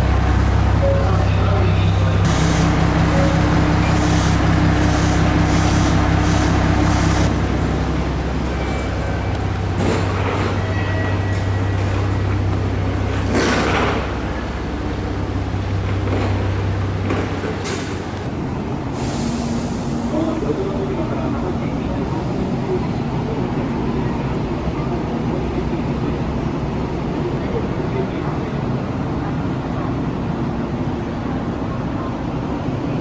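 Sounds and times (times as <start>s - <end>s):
diesel engines idling: 0.0s - 23.5s.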